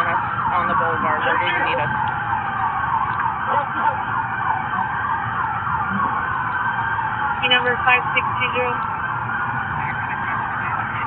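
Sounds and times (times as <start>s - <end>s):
faint radio voices: 0.0s - 5.2s, 7.3s - 11.0s
road rumble: 0.0s - 11.0s
siren yelping: 0.0s - 11.0s.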